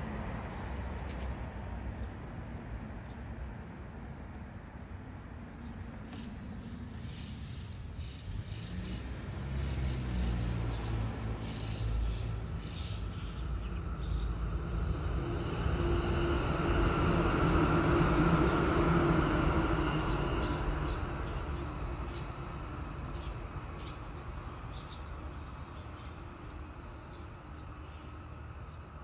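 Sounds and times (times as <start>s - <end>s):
passing vehicle rumble: 7.4s - 25.3s.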